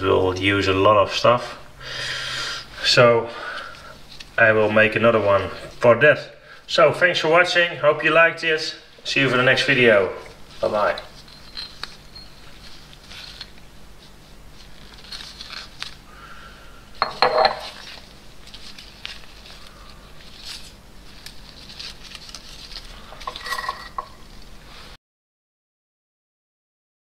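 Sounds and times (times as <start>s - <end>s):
metal cup and parts clinking: 10.9s - 12.4s, 17.0s - 17.9s, 23.1s - 24.2s.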